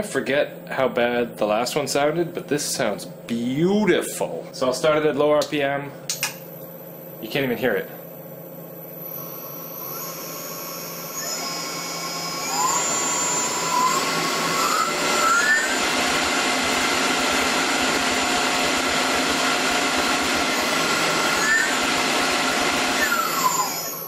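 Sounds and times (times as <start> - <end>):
mill spindle whine: 6.7 - 24.0.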